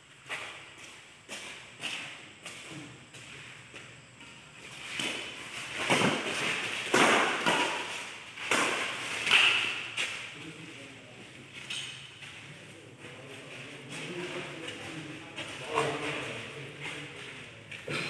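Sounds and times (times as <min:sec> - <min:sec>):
rackets striking shuttlecock: 0:04.9 - 0:10.3.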